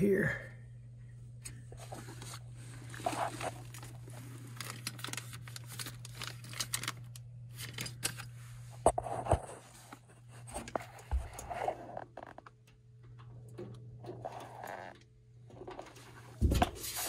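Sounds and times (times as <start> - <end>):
steady low hum: 0.0 - 17.0
plastic bag crinkling: 2.1 - 8.1.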